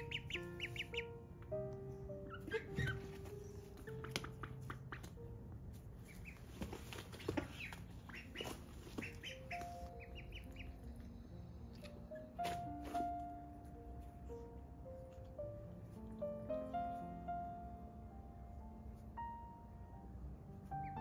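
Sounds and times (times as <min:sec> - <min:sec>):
ducks calling softly: 0:00.0 - 0:01.2, 0:02.2 - 0:05.2, 0:06.0 - 0:11.1
ducklings peeping: 0:00.0 - 0:13.0, 0:20.6 - 0:21.0
soft background music: 0:00.0 - 0:21.0.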